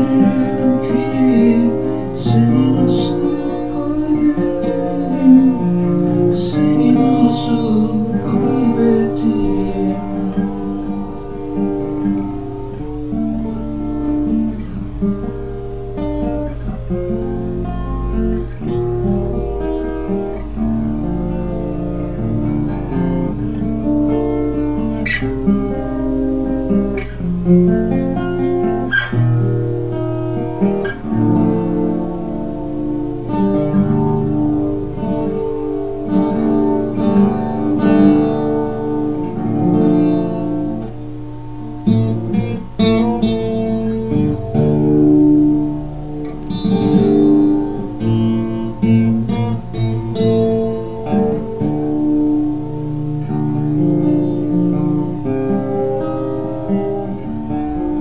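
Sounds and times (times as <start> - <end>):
acoustic guitar playing: 0.0 - 58.0.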